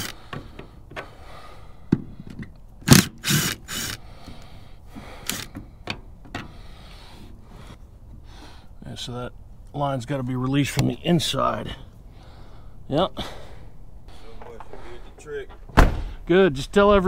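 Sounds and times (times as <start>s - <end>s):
impact driver bursts: 0.0s - 0.2s, 2.8s - 4.0s, 5.2s - 5.5s.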